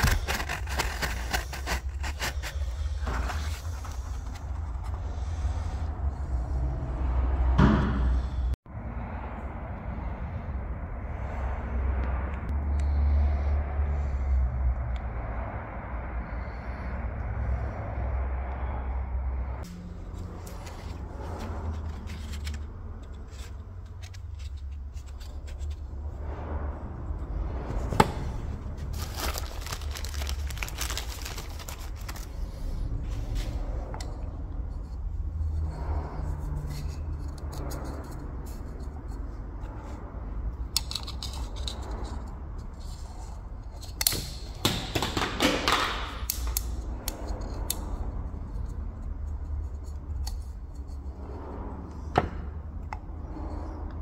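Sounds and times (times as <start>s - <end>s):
plastic handling rustling and scraping: 0.0s - 5.4s, 20.1s - 26.2s, 27.7s - 40.0s.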